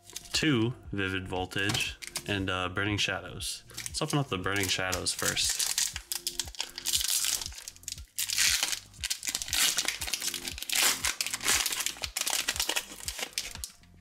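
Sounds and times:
foil wrapper crinkling: 3.7 - 13.8.

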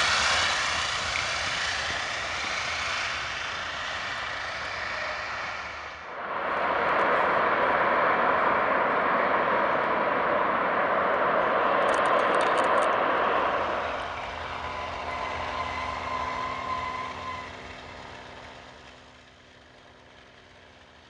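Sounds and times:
high engine whine: 0.0 - 21.0
piston engines roaring: 0.0 - 21.0.

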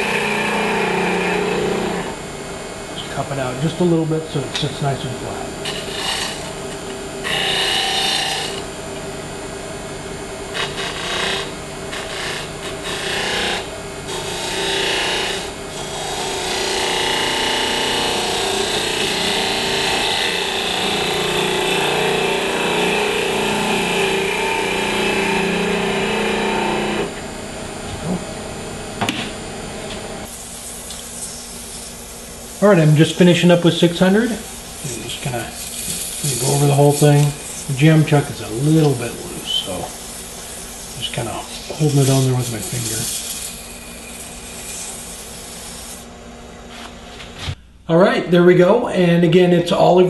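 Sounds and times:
wood lathe spinning: 0.0 - 2.2, 5.6 - 8.7, 10.5 - 27.2, 30.2 - 46.1.

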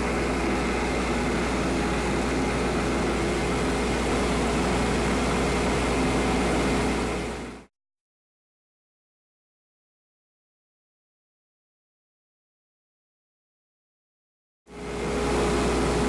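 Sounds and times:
wood lathe whirring: 0.0 - 7.6.

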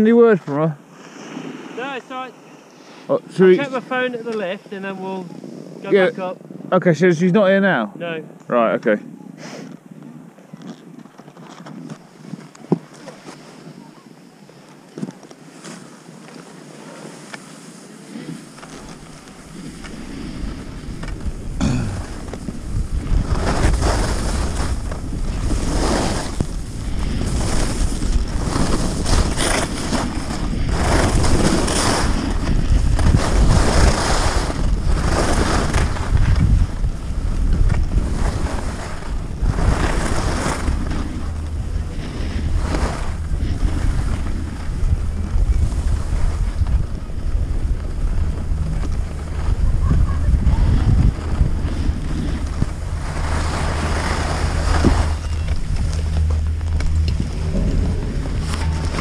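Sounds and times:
skis scraping on snow: 0.3 - 6.2, 10.6 - 59.0
wind buffeting microphone: 18.4 - 59.0.

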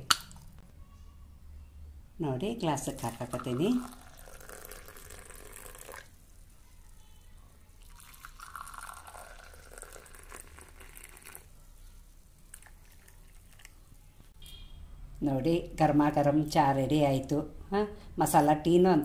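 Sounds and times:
tea pouring into glass: 3.0 - 6.2, 7.8 - 11.5, 12.5 - 13.8.

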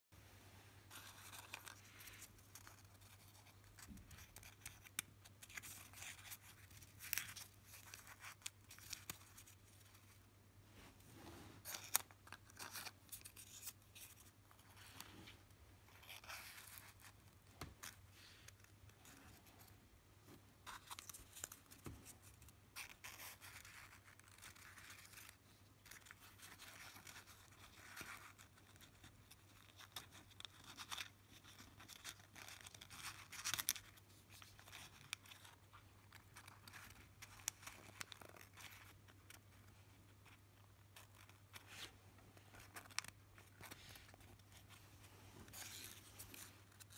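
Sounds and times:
small paper clicks: 0.9 - 9.8
paper rustling and crinkling: 20.6 - 46.9.

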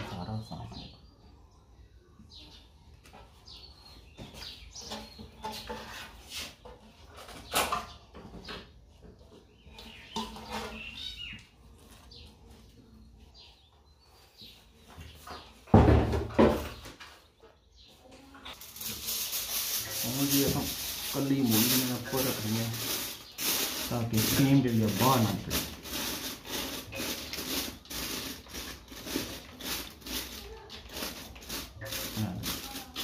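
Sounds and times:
hand scraping steel bowl: 18.5 - 33.0.

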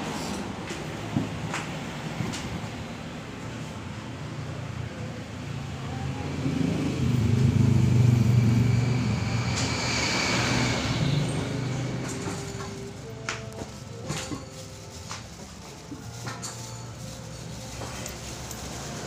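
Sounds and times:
vehicle engine passing by: 4.2 - 13.2.

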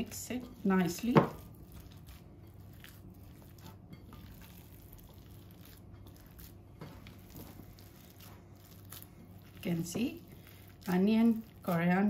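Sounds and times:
low room hum: 0.0 - 12.0
hands squishing raw mince: 0.5 - 12.0.

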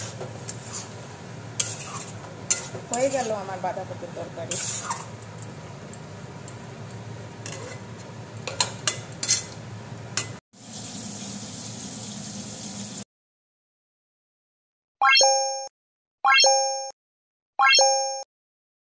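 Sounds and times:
cooking hiss: 0.0 - 5.1, 10.6 - 13.0
spatula scraping pan: 0.0 - 5.2, 7.4 - 9.6
spatula clinking pan side: 1.6 - 3.4.

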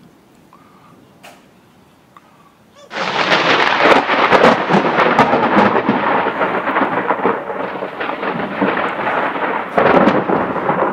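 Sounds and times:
thunder rolling with crackles: 2.9 - 10.9.

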